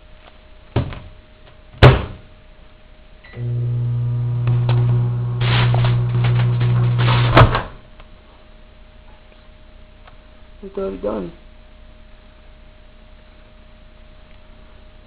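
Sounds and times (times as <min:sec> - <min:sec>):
microwave humming: 0:03.2 - 0:08.2
cd crackling and sparking: 0:04.0 - 0:07.9.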